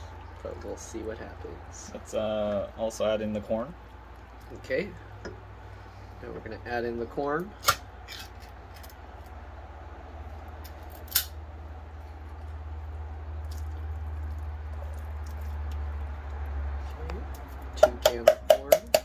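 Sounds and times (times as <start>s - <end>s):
hand taps on a tin can: 17.8s - 19.0s.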